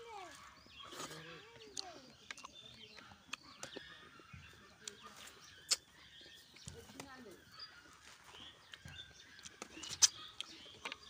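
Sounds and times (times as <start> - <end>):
birds chirping: 0.0 - 11.0
mouth chewing and lip smacks: 0.8 - 6.7, 8.6 - 11.0.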